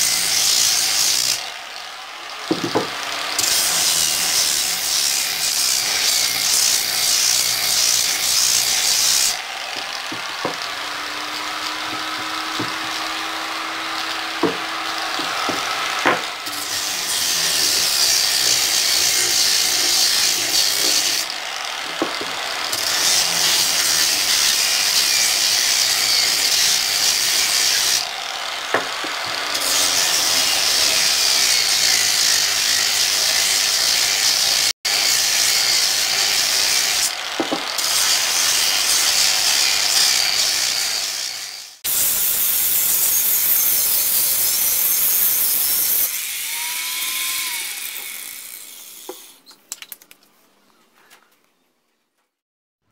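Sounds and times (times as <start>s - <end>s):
power sander grinding wood: 0.0s - 49.5s
sharp knocks: 14.4s - 16.3s, 37.4s - 37.7s.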